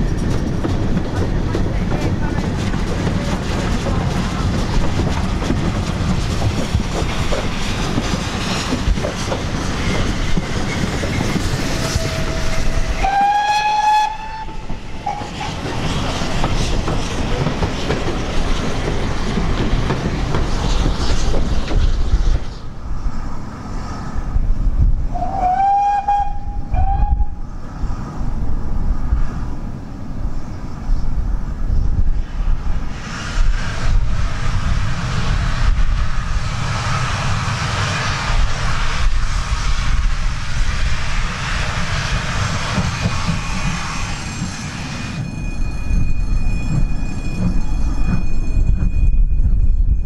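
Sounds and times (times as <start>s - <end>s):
train wheels clattering on rails: 0.0s - 22.7s, 32.7s - 50.0s
steam locomotive working: 0.0s - 50.0s
steam whistle blast: 11.7s - 15.3s, 25.1s - 27.4s.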